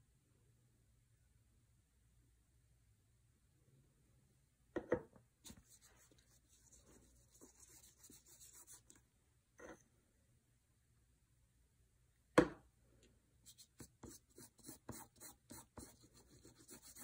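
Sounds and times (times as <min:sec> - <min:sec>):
finger rubbing paint on paper: 0:05.5 - 0:09.0, 0:13.5 - 0:17.0.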